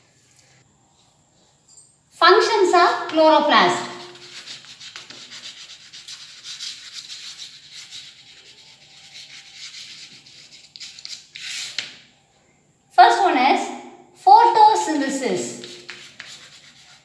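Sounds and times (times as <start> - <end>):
chalk scratching on blackboard: 3.7 - 12.0, 15.4 - 17.0.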